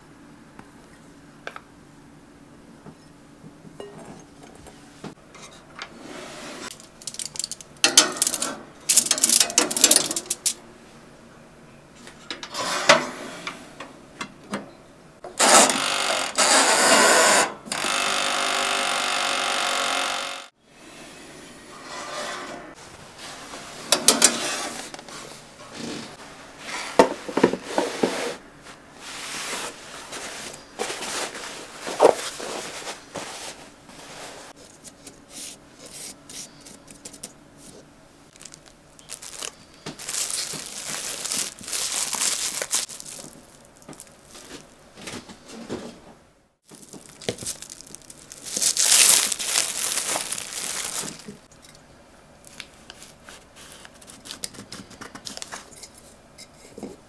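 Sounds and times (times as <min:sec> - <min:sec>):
aluminium foil crinkling: 0:06.7 - 0:10.6, 0:38.3 - 0:44.8, 0:46.6 - 0:51.5, 0:52.4 - 0:54.6.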